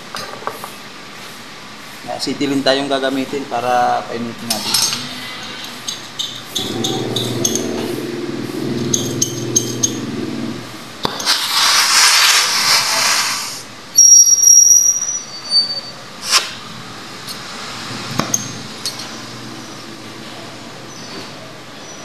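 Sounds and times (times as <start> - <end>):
low hum: 6.5 - 11.0
gas hissing from torch: 11.0 - 13.7, 16.2 - 16.6
flame burst with high whistle: 11.1 - 16.6.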